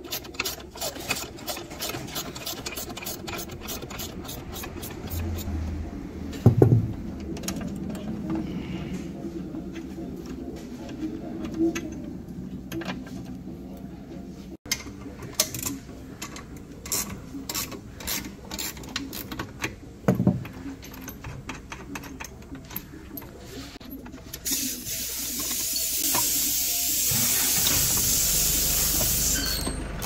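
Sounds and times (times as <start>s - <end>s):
tools clinking against metal bolts: 14.7s - 24.5s.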